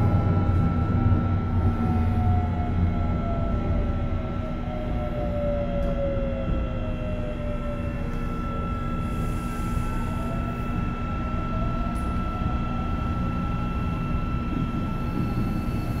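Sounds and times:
faint gliding whines: 0:00.0 - 0:16.0
train wheels rumbling on track: 0:11.6 - 0:16.0.

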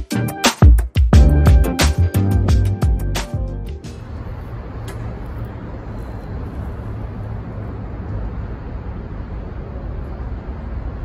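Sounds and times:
road traffic: 0:01.8 - 0:11.0
distant engines rumbling: 0:03.0 - 0:11.0.

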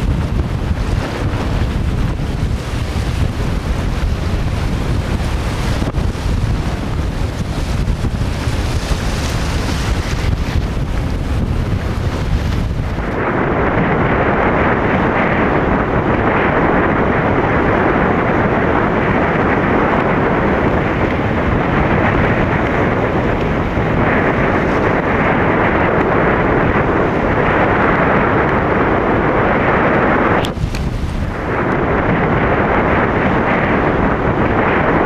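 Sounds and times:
wind buffeting microphone: 0:00.0 - 0:35.0.

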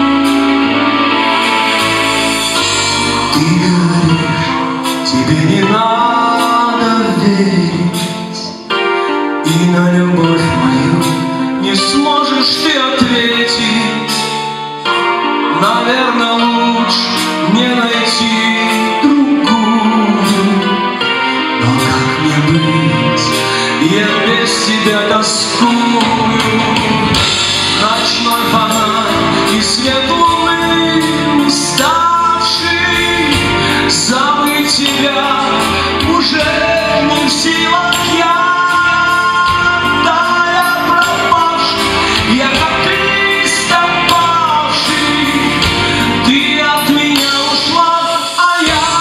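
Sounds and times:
bass guitar: 0:00.0 - 0:49.0
drums: 0:00.0 - 0:49.0
keyboard: 0:00.0 - 0:49.0
person singing: 0:00.0 - 0:49.0.

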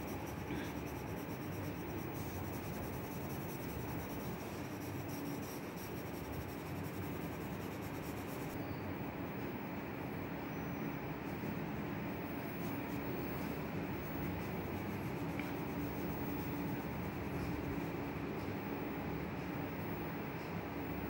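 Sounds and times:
pencil scratching on paper: 0:00.0 - 0:08.6, 0:11.3 - 0:18.1.

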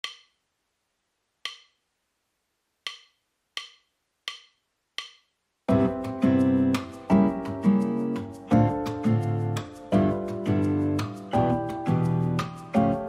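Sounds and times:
acoustic guitar music: 0:05.7 - 0:13.0.

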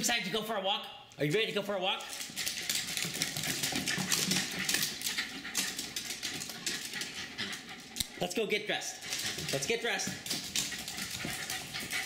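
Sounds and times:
dog claws clicking on wooden floor: 0:02.0 - 0:08.2, 0:09.0 - 0:12.0.

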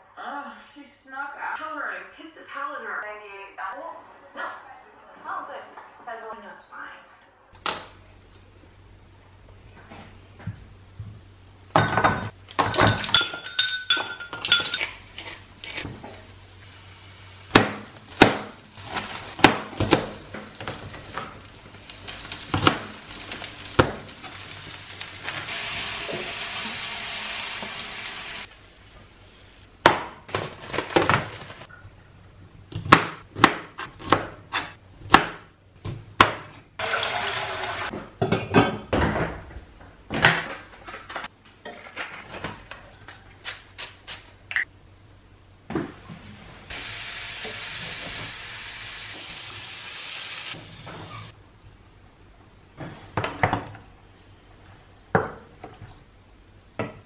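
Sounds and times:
ceramic bowls clinking: 0:11.8 - 0:15.0
utensils and pans knocking: 0:11.8 - 0:15.0
food sizzling in pans: 0:15.1 - 0:29.7, 0:36.8 - 0:37.9, 0:46.7 - 0:51.4.

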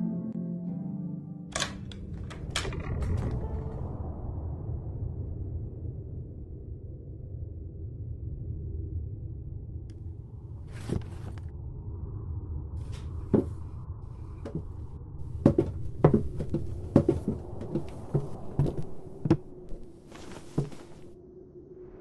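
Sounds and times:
footsteps on wooden stairs: 0:12.9 - 0:21.1.

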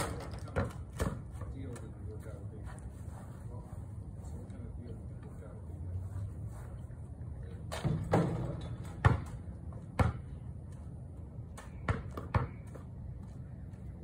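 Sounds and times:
basketball bouncing on pavement: 0:00.0 - 0:01.8, 0:07.7 - 0:10.9, 0:11.5 - 0:13.9.

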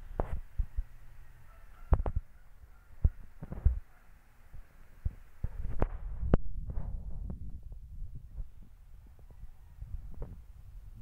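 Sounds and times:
low rumble: 0:05.0 - 0:11.0.

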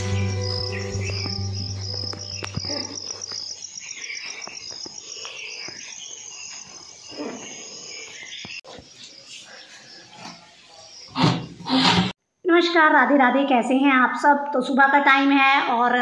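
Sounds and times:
crickets chirping: 0:00.0 - 0:11.6
scattered other insect calls: 0:00.0 - 0:12.1.

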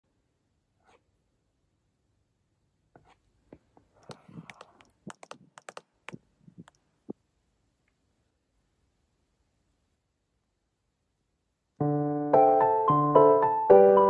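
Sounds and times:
stylus tapping on touchscreen: 0:03.0 - 0:07.2.

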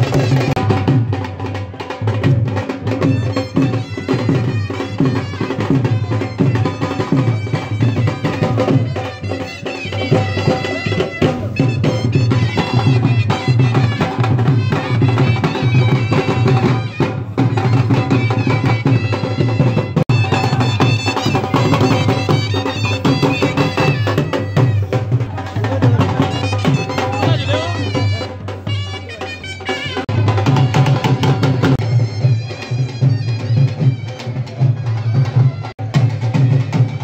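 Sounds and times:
drums beating steady rhythm: 0:00.0 - 0:37.0.

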